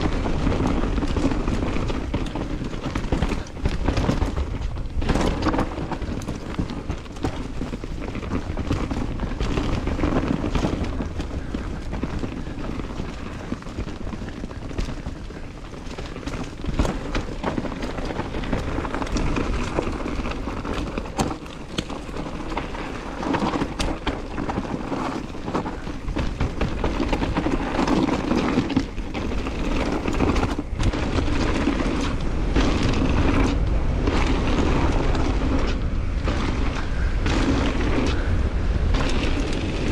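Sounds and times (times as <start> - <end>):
bike clicks and rattles: 0.0 - 39.9
bike tyres rumbling on dirt: 0.0 - 39.9
wind buffeting microphone: 0.0 - 39.9.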